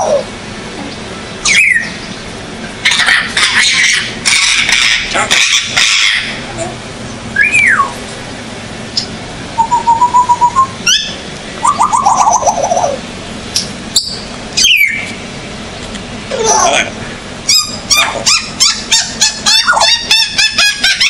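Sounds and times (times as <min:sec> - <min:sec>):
parrot whistling and calling: 0:00.0 - 0:00.3, 0:01.4 - 0:02.1, 0:02.8 - 0:06.4, 0:07.4 - 0:08.0, 0:09.0 - 0:13.0, 0:13.6 - 0:15.2, 0:17.5 - 0:21.0.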